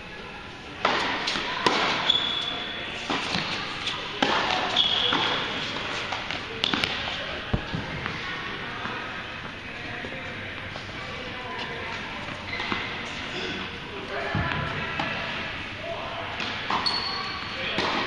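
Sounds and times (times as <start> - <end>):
tennis balls struck by rackets: 0.8 - 2.1, 4.2 - 8.2, 17.7 - 18.0
shoes squeaking on hard court: 1.3 - 7.3, 11.5 - 13.6, 16.5 - 17.6.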